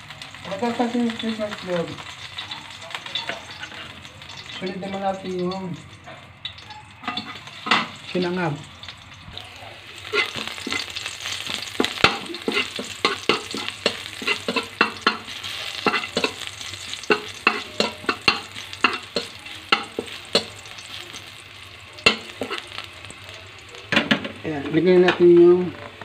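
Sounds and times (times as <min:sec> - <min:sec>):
garlic sizzling in oil: 0:00.0 - 0:26.0
spatula knocking and scraping pan: 0:10.1 - 0:20.6, 0:22.1 - 0:22.7.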